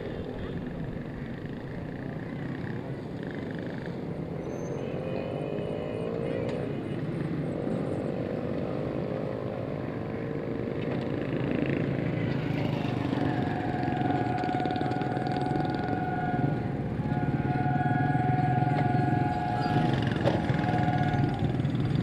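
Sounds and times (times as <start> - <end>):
diesel train rumble: 0.0 - 22.0
motorcycle engines: 0.0 - 22.0
two-note horn-like tone: 13.1 - 21.8.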